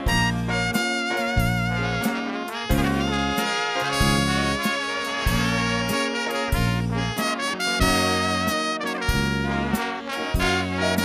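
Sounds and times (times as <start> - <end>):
low bass notes: 0.0 - 2.1, 2.7 - 3.4, 4.0 - 4.6, 5.2 - 7.2, 7.8 - 9.8, 10.4 - 11.0
drum strokes: 0.0 - 11.0
saxophones and trumpet melody: 0.0 - 11.0
wind band playing: 0.0 - 11.0.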